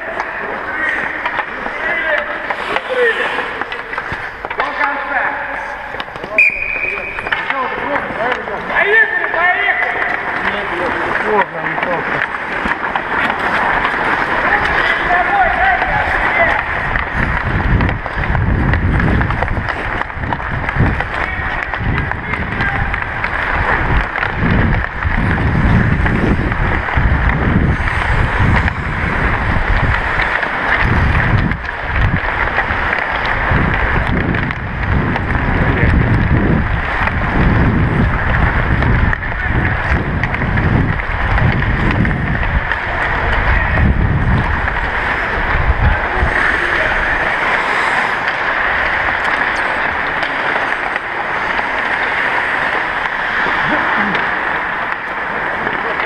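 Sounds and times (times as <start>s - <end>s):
ice skate blades scraping: 0.0s - 56.0s
skate blades hissing on ice: 0.6s - 4.6s, 27.6s - 31.2s, 46.0s - 55.2s
wind on microphone: 14.4s - 50.1s.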